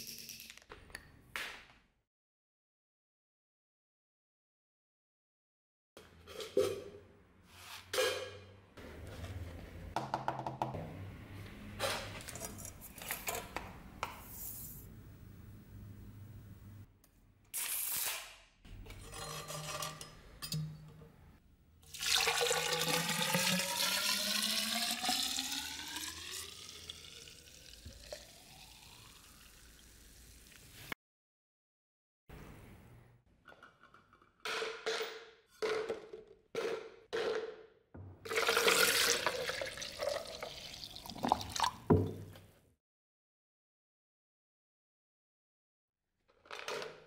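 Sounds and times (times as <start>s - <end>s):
liquid pouring into metal cylinder: 21.8s - 30.2s, 38.3s - 42.0s.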